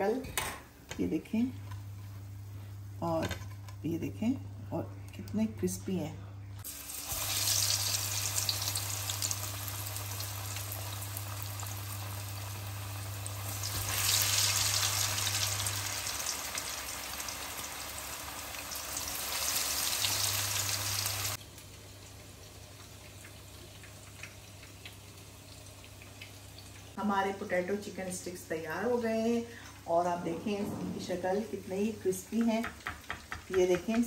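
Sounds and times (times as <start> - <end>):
food sizzling in hot oil: 6.6 - 27.0.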